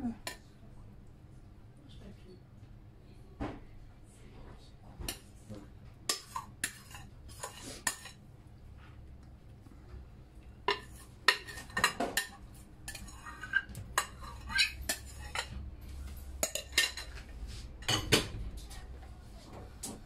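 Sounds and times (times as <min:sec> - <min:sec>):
spoon scraping a mixing bowl: 0:06.1 - 0:08.2, 0:10.6 - 0:15.6.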